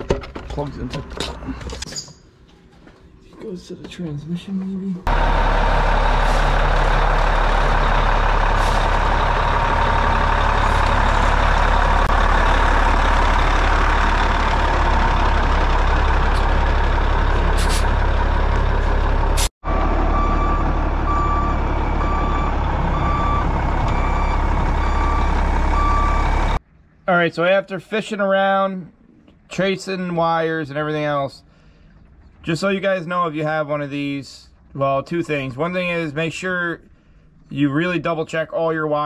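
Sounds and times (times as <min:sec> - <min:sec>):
diesel truck engine running: 0:05.0 - 0:26.6
backup alarm beeping: 0:20.1 - 0:26.6.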